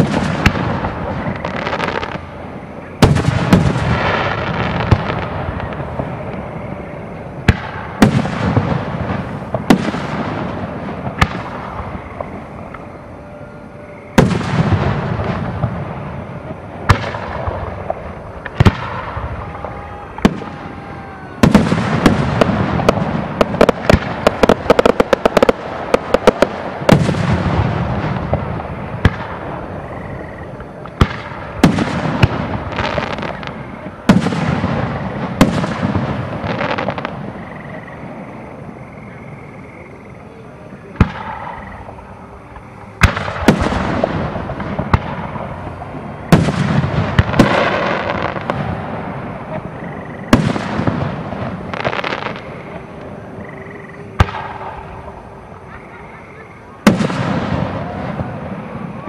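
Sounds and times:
fireworks booming: 0.0 - 59.0.

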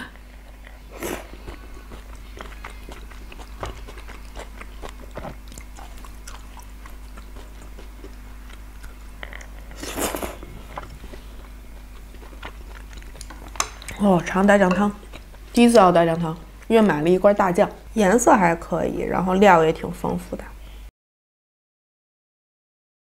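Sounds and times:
person chewing with wet smacks: 0.6 - 14.0.

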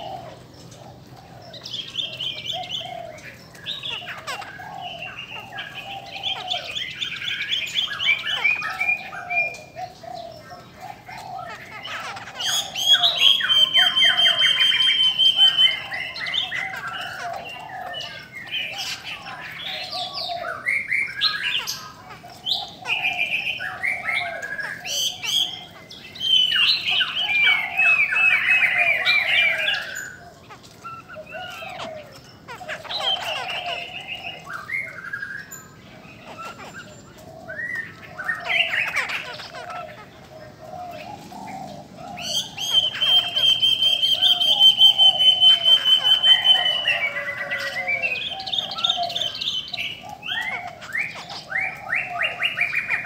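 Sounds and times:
birds singing fast trills: 0.0 - 53.0.

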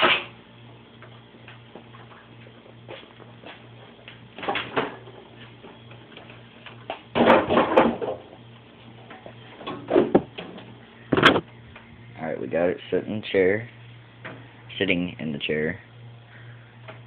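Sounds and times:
microwave oven thumping and clattering: 0.0 - 0.4, 4.3 - 5.2, 6.9 - 8.4, 9.6 - 11.5
low pulsing hum: 8.2 - 17.0.

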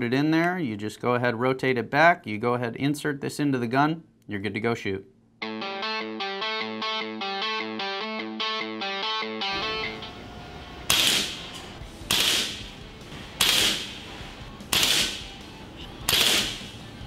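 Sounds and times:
air pistol shots: 10.9 - 15.4, 16.0 - 16.8.

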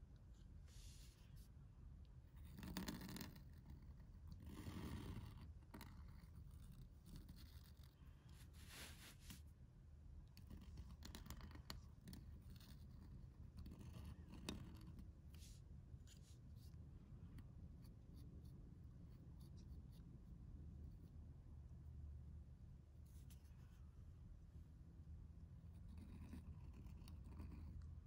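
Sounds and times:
low room hum: 0.0 - 28.0
metal nib scratching paper: 2.4 - 9.4, 10.3 - 15.6, 25.6 - 27.9.

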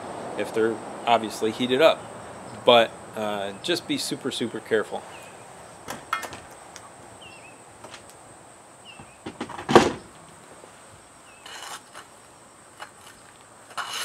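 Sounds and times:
pry tool scraping shingles: 11.3 - 14.0.

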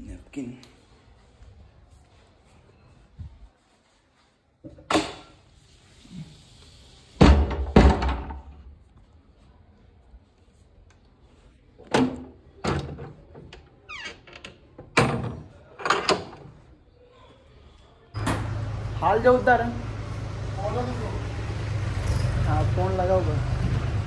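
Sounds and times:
knocks and thuds: 7.2 - 8.4.

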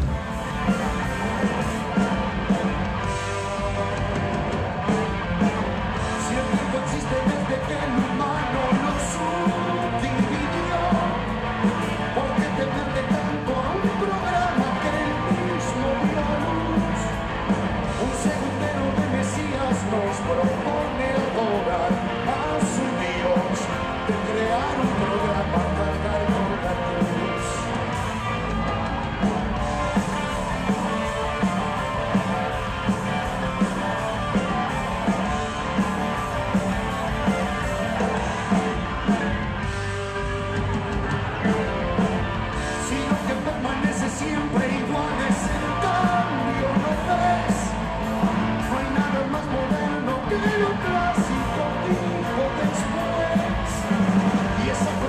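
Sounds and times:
person singing: 0.0 - 17.2, 17.8 - 27.8, 42.6 - 55.0
distorted electric guitars: 0.0 - 55.0
drums: 0.0 - 55.0.

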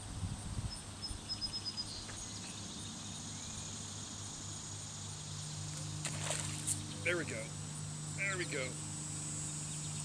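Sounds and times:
bird chirping: 0.6 - 4.3, 8.2 - 10.0.

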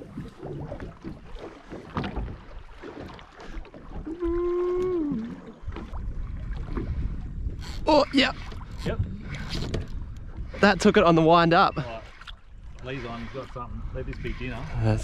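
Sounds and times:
water lapping against hull: 0.0 - 15.0
wind: 0.0 - 15.0.

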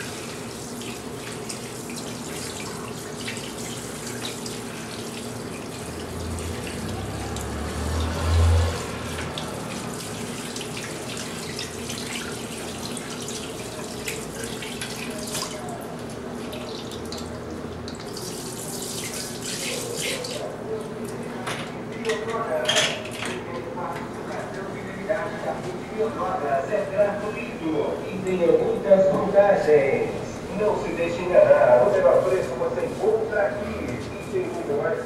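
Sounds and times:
water spraying onto hair: 18.0 - 20.4.

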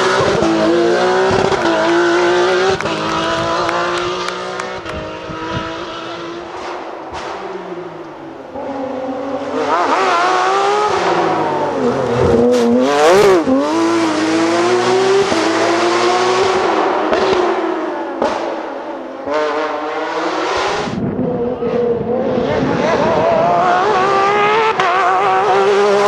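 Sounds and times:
rally car engine revving past: 0.0 - 26.0
rally car starting and accelerating: 0.0 - 26.0.

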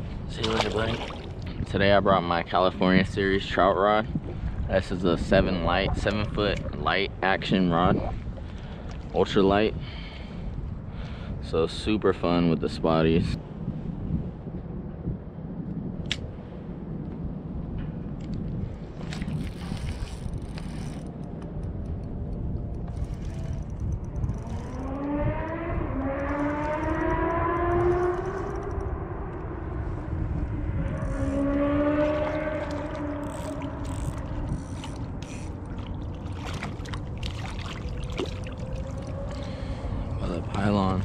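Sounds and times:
wind rumble on microphone: 0.0 - 41.0
siren wailing: 24.2 - 35.6, 37.8 - 40.3
fish splashing at water surface: 35.7 - 39.6.

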